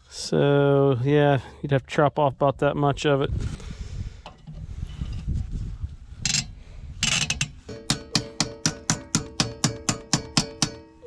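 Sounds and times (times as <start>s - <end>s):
ratchet wrench clicking: 6.2s - 10.7s.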